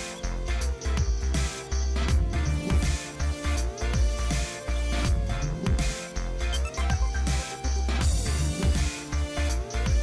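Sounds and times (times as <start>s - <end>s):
pulsing bass beat: 2.0s - 4.3s, 6.5s - 10.0s.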